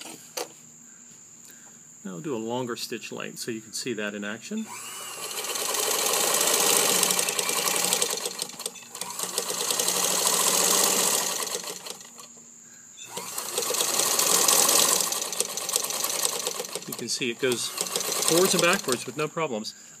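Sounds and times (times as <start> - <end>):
sewing machine stitching: 4.6 - 12.3, 13.1 - 19.3.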